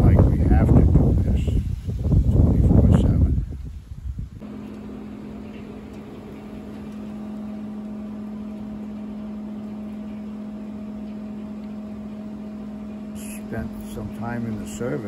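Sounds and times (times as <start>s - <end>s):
sawmill machinery hum: 4.4s - 15.0s.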